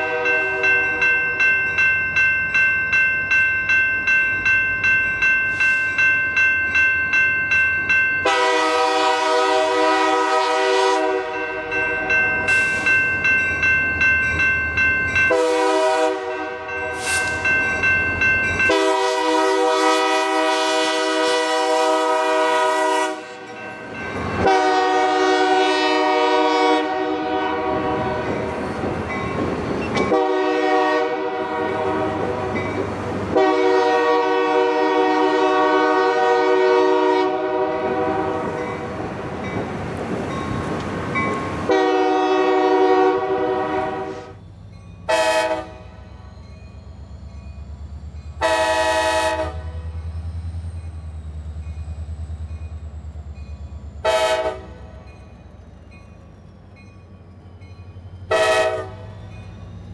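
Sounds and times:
locomotive air horn blasts: 0.0 - 1.0, 8.2 - 11.8, 15.3 - 17.4, 18.7 - 23.6, 24.4 - 28.6, 30.1 - 32.6, 33.3 - 38.6, 41.7 - 44.4, 45.1 - 46.0, 48.4 - 50.0, 54.0 - 55.0, 58.3 - 59.1.

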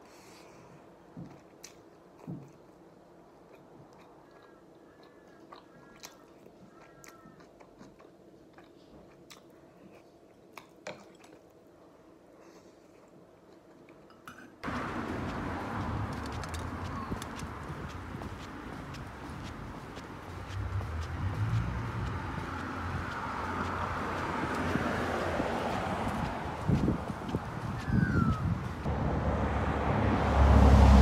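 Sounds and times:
quiet chewing: 0.1 - 14.2, 14.8 - 26.4
footsteps on concrete: 14.6 - 28.9
loud outdoor noise: 14.6 - 31.0.

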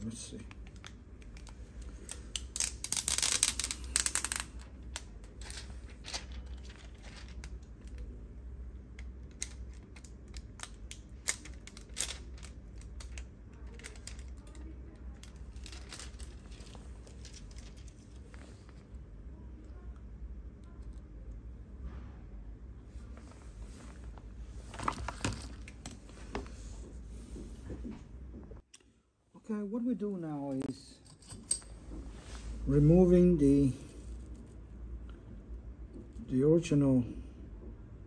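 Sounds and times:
plastic film peeling: 0.5 - 8.1, 9.3 - 18.8.

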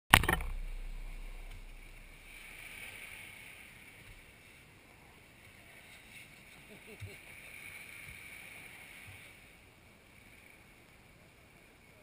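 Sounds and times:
sharp knock: 0.1 - 2.6
small waves washing onto beach: 0.5 - 12.0.

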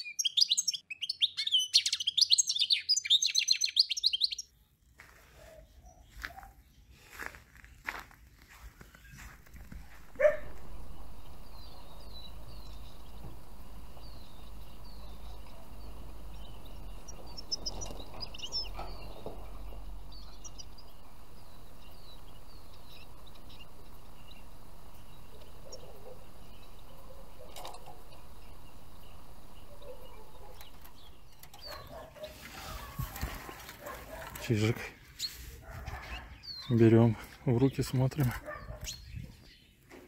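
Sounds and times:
songbirds chirping: 0.0 - 40.0
steady low rumble: 9.2 - 32.2.

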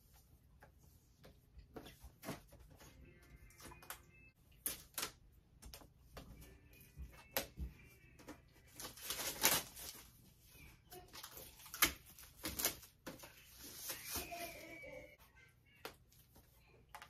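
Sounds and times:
plastic packaging rustling: 8.3 - 14.8.

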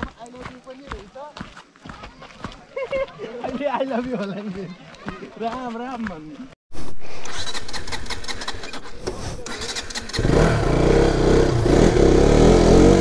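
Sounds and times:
motorcycle engine starting and revving: 7.0 - 13.0.

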